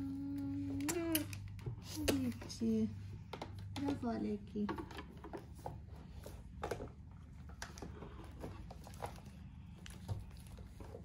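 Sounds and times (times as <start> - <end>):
steady low hum: 0.0 - 11.0
plastic toys clicking and tapping: 3.2 - 5.4.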